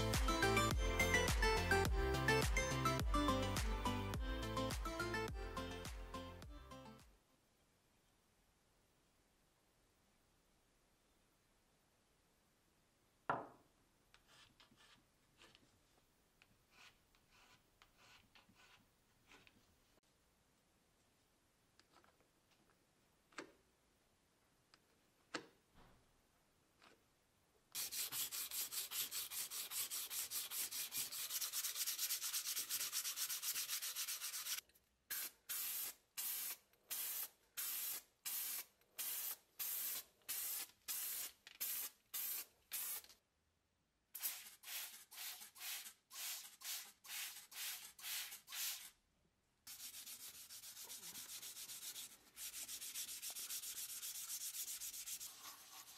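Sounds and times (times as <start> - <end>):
wet sandpaper rubbing metal tube: 27.8 - 43.1, 44.2 - 48.9, 49.7 - 55.9
spray primer hissing: 35.1 - 43.1.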